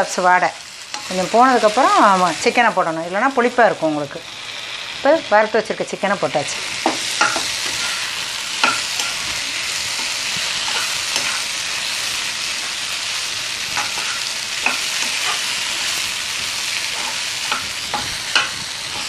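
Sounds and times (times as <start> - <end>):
chicken sizzling in a wok: 0.0 - 19.0
metal spatula scraping pan: 6.7 - 12.8, 13.6 - 19.0.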